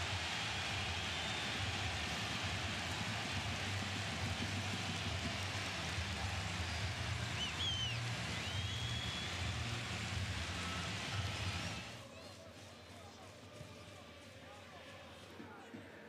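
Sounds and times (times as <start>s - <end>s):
stadium crowd noise: 0.0s - 16.0s
pitch-bending whistles: 6.7s - 9.6s.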